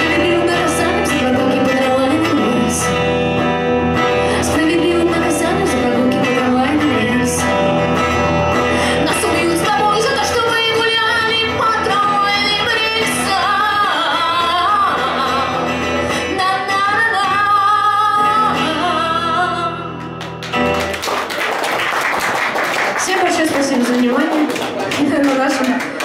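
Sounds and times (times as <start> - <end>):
woman singing: 0.0 - 3.1, 4.1 - 8.1, 8.8 - 20.1
electric guitar: 0.0 - 26.0
audience clapping: 20.0 - 26.0.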